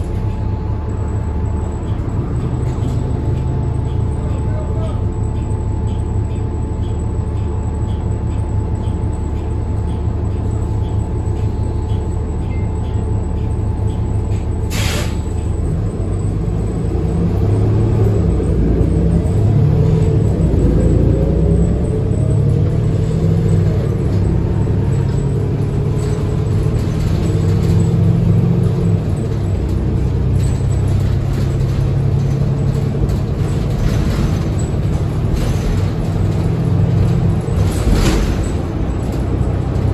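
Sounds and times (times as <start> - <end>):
bus diesel engine: 0.0 - 39.9
air brake hiss: 14.7 - 15.3.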